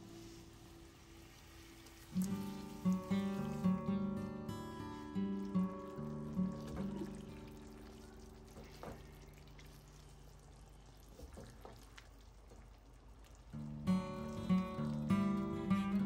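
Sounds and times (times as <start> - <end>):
acoustic guitar music: 2.1 - 8.8, 13.6 - 16.0.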